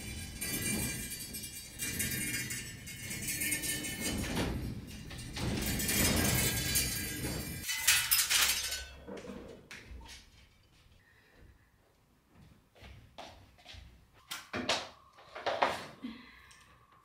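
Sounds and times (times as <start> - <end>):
metal drying rack rattling: 0.0 - 9.2.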